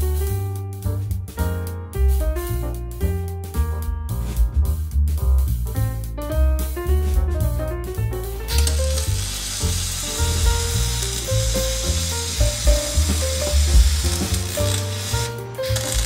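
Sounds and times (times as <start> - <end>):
background music: 0.0 - 16.0
arc welding crackling hiss: 8.4 - 16.0.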